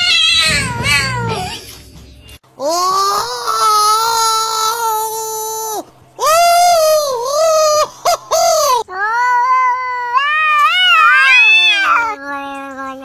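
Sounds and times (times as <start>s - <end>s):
cat yowling: 0.0s - 1.6s, 8.9s - 12.4s
loud wailing cry: 2.6s - 12.2s.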